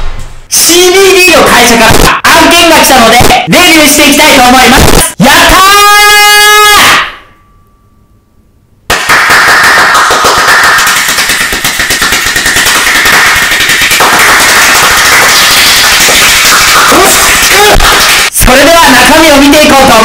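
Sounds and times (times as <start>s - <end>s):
man shouting: 0.7s - 7.0s.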